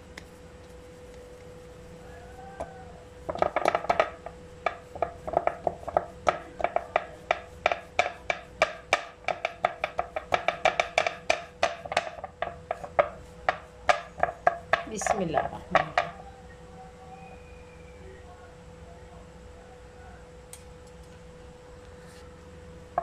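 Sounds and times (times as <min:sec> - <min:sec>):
hands patting dough: 0:00.0 - 0:16.2.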